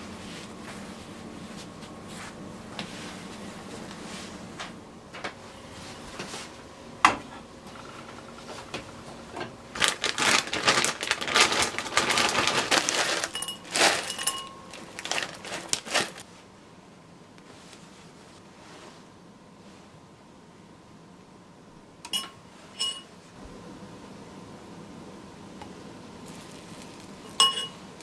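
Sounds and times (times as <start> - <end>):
plastic bag crinkling: 9.7 - 16.2, 26.3 - 27.4.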